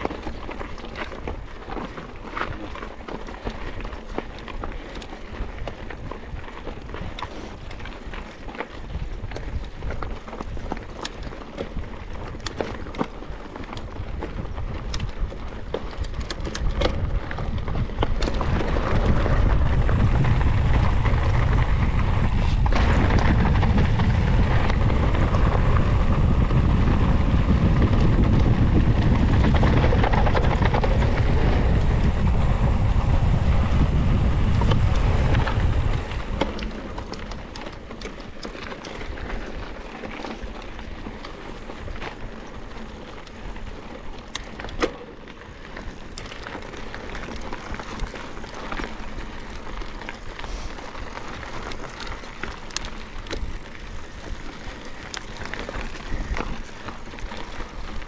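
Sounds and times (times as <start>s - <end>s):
bike clicks and rattles: 0.0s - 58.0s
bike rolling over dirt trail: 0.0s - 58.0s
wind rushing over microphone: 13.9s - 44.7s, 45.4s - 58.0s.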